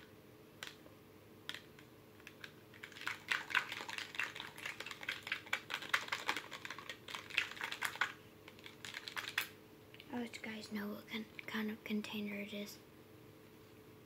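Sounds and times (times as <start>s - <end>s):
plastic spoon stirring slime: 1.5s - 9.5s.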